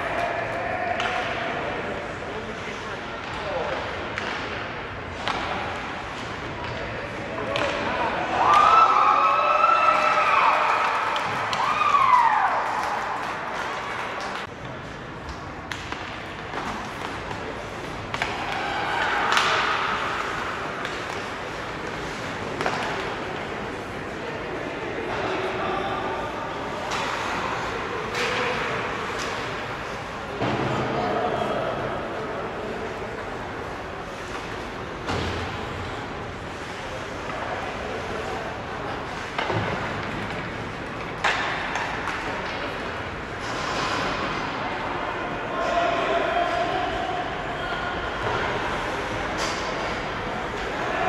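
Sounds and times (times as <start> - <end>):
ice rink ambience: 0.0 - 51.0
spectators' voices: 0.0 - 51.0
hockey stick hitting puck: 7.4 - 8.7, 15.2 - 23.6, 39.2 - 44.5.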